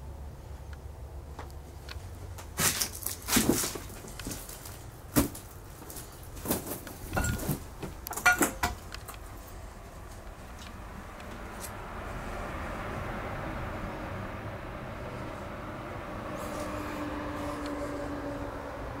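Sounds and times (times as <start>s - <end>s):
knocks and clunks: 6.4s - 9.1s.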